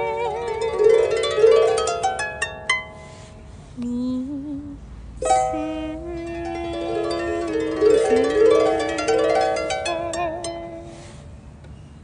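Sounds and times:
small harp plucked: 0.0s - 3.2s, 5.2s - 10.9s
wavering sung note: 5.2s - 11.0s.

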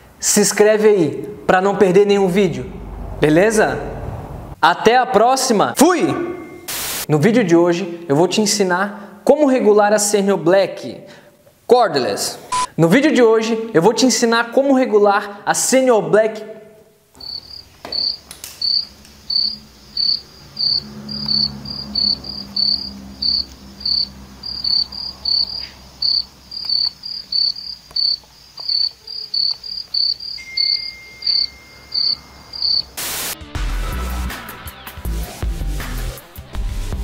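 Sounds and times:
cricket chirping: 17.2s - 33.0s.

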